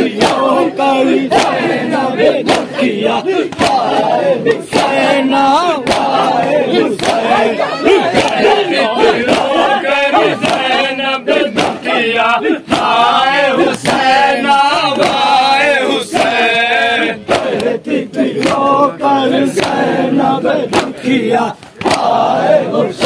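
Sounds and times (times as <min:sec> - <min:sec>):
crowd of men chanting: 0:00.0 - 0:23.0
hands slapping chests: 0:01.3 - 0:01.6, 0:02.4 - 0:02.7, 0:03.5 - 0:05.0, 0:05.8 - 0:10.8, 0:11.5 - 0:12.0, 0:13.6 - 0:14.1, 0:18.4 - 0:18.7, 0:19.5 - 0:19.8, 0:20.7 - 0:21.0, 0:21.6 - 0:22.2.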